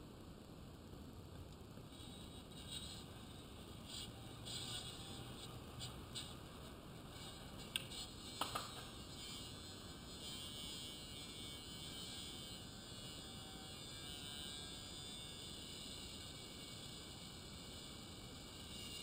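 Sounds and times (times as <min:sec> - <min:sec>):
faint background hiss: 0:00.0 - 0:19.0.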